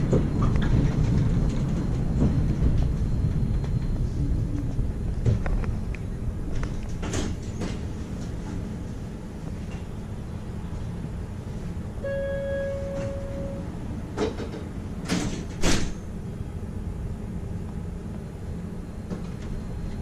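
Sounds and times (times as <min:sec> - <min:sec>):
low hum inside tram: 0:00.0 - 0:20.0
electronic tone: 0:12.0 - 0:13.7.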